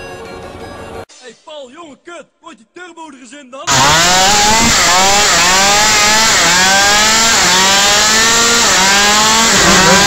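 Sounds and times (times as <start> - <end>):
two-stroke scooter engine revving: 3.7 - 10.0
tyre spinning in burnout: 3.7 - 10.0.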